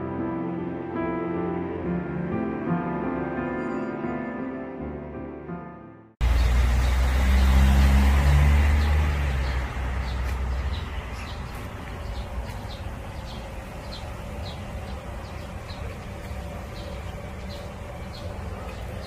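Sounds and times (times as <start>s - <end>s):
vehicle engine rumble: 6.2s - 19.0s
small bird chirping: 8.8s - 19.0s.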